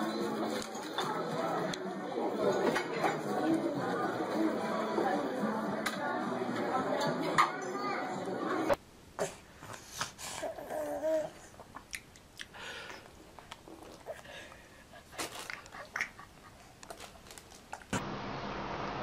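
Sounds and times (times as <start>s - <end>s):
baby murmuring: 9.2s - 11.7s
wet mouth clicks and smacks: 11.7s - 12.6s.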